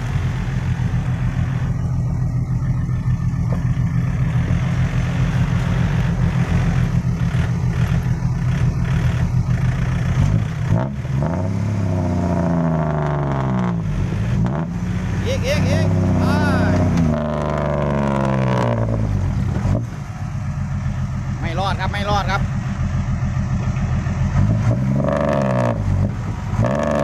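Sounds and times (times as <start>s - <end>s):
diesel engines revving: 0.0s - 27.0s
loud exhaust: 0.0s - 27.0s.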